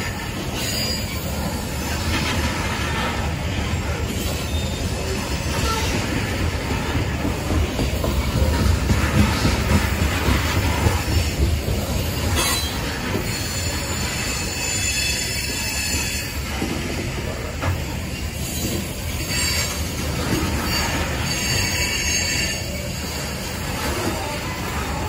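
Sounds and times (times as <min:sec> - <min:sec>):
high wheel squeal: 0:00.0 - 0:01.9, 0:03.7 - 0:06.2, 0:12.0 - 0:16.6, 0:17.9 - 0:23.6
train clanks: 0:00.0 - 0:25.0
train wheels rumbling on rail: 0:00.0 - 0:25.0.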